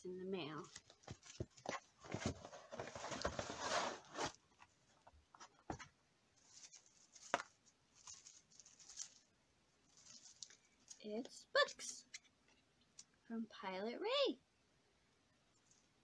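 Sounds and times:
cardboard rustling and scraping: 0.6 - 9.3.

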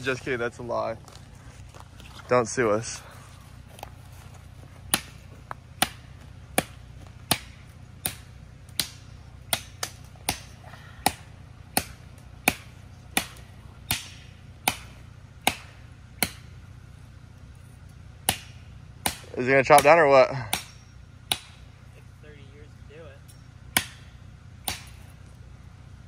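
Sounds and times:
chopping strikes on tree trunk: 4.8 - 16.6, 18.2 - 21.7, 23.7 - 25.2.

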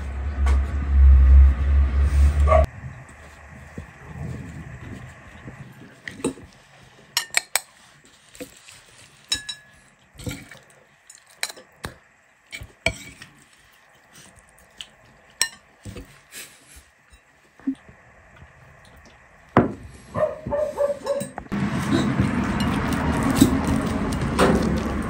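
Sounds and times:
metal spoon clinking on plates: 9.3 - 10.6, 15.4 - 15.7.

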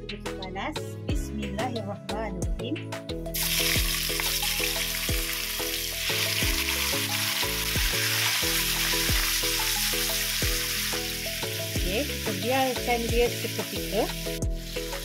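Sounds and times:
background music with beat: 0.0 - 15.0
meat sizzling in hot oil: 3.4 - 15.0.

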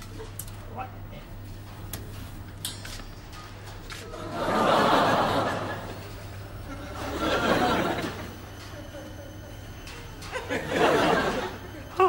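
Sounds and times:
studio audience laughing: 4.1 - 9.7, 10.3 - 11.8.

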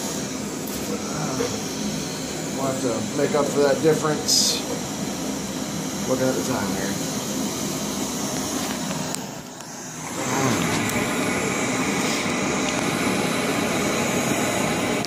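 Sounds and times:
camping stoves hissing: 0.0 - 15.0.

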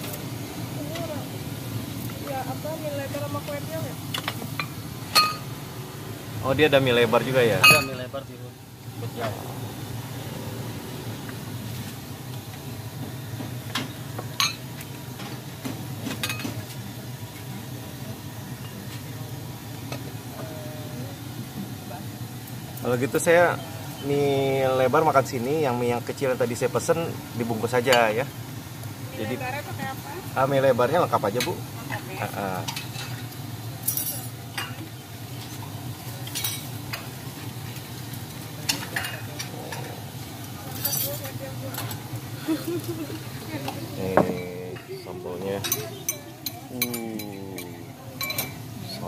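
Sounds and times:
ceramic bowls clinking: 4.6 - 5.5, 7.6 - 8.0, 45.6 - 48.6.

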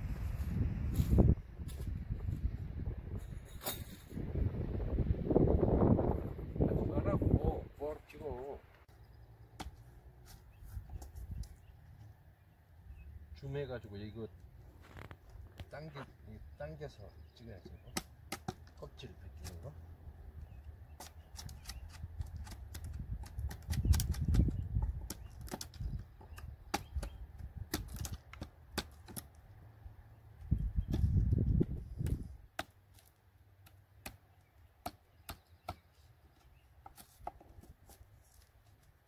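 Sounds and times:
hatchet chipping bark: 17.6 - 18.8, 20.9 - 29.3, 33.6 - 36.0.

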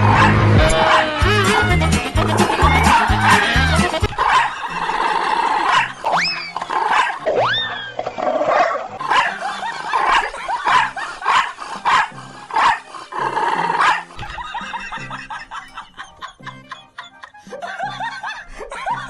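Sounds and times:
dog barking and growling: 0.0 - 7.5, 8.3 - 14.3
background music: 0.0 - 19.0.

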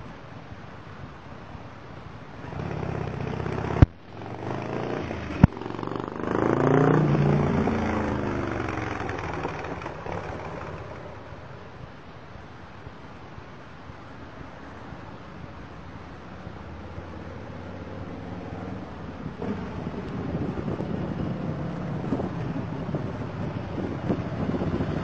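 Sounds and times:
exhaust pops: 2.4 - 11.2, 19.2 - 25.0
motorcycle passing by: 2.4 - 11.7, 16.3 - 25.0.

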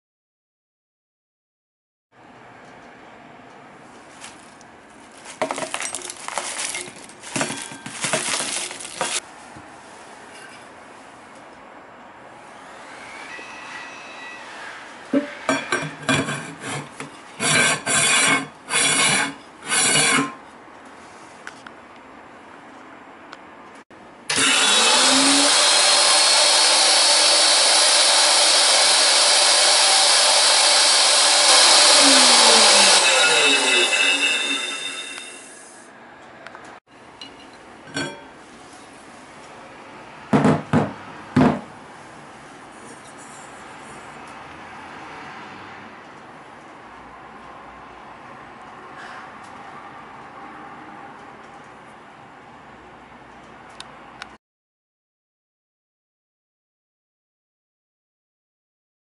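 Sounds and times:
metal lid scraping shut: 15.1 - 20.4.

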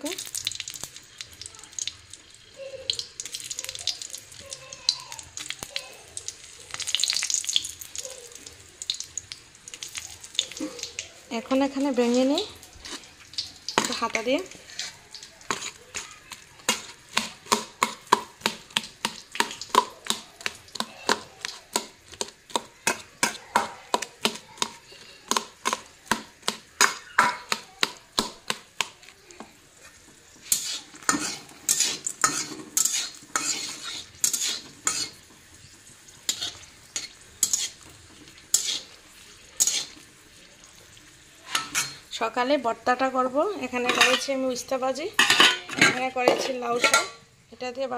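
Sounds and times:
chillies sizzling in hot oil: 0.0 - 47.9
ladle clinking against wok: 45.2 - 47.2.

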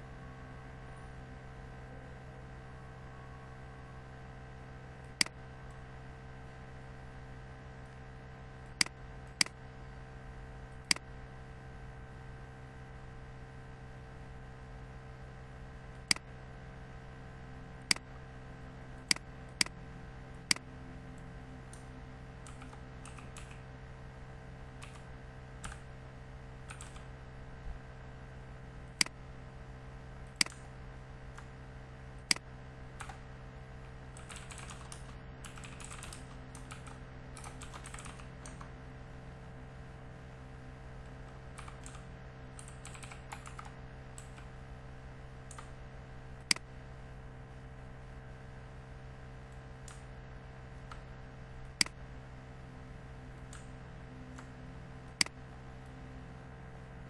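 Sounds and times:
steady low hum: 0.0 - 57.0
mouse clicks: 19.0 - 19.8, 21.7 - 23.6, 30.3 - 30.7, 32.3 - 33.2, 41.3 - 44.5, 45.5 - 45.7, 46.4 - 46.7, 49.8 - 50.1, 50.8 - 52.0, 53.4 - 53.7
typing on computer keyboard: 22.5 - 23.6, 26.7 - 27.1, 34.2 - 38.6, 41.6 - 42.0, 42.6 - 44.5.

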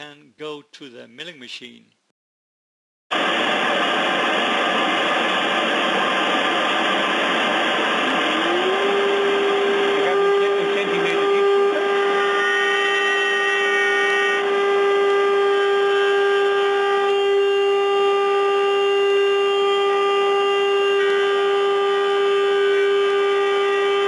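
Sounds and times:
machine whine: 3.1 - 24.0
cutter whining into wood: 8.1 - 24.0.

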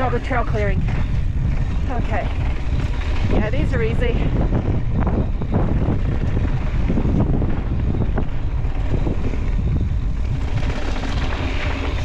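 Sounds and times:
bike tyre noise: 0.0 - 12.0
wind rumbling on microphone: 0.0 - 12.0.

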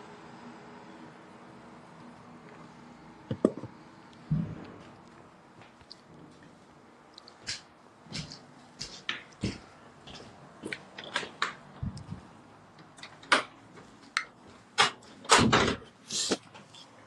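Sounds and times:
loud thud: 4.3 - 4.6
clicks and knocks of objects handled: 10.6 - 12.2.

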